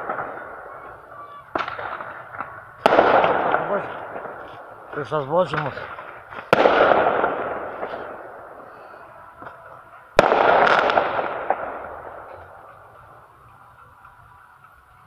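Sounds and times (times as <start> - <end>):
firework bursting with bang: 0.0 - 13.3.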